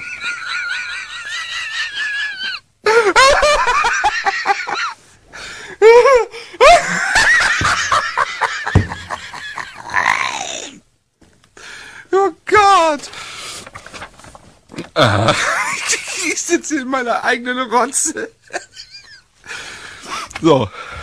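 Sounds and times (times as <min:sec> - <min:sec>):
man laughing hysterically: 0:00.0 - 0:05.0, 0:05.8 - 0:10.4, 0:15.0 - 0:16.4, 0:18.5 - 0:19.3.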